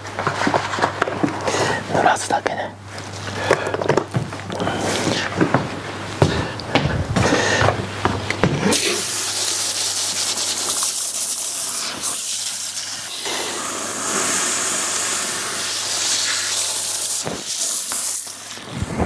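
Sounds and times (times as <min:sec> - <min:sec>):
hair dryer blowing air: 0:08.6 - 0:18.9.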